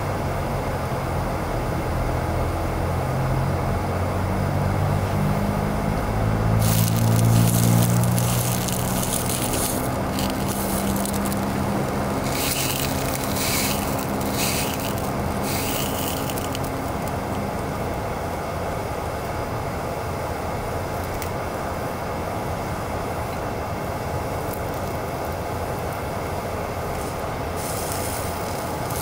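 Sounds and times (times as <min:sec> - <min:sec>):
food sizzling in a frying pan: 0:06.5 - 0:17.1
chopsticks scraping food: 0:06.6 - 0:17.1.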